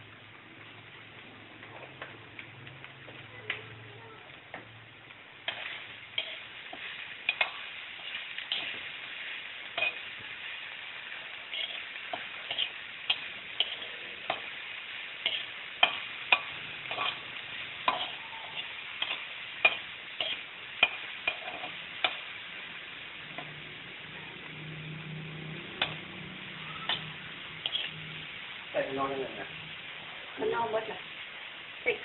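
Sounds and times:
meat sizzling in a wok: 0.0 - 32.0
metal utensil scraping a wok: 5.4 - 10.5, 11.1 - 14.6, 15.2 - 22.4, 24.1 - 28.4.

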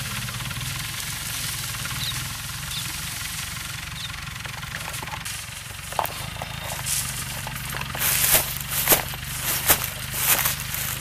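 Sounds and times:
tractor engine running: 0.0 - 11.0
sharp crunching: 4.9 - 11.0.

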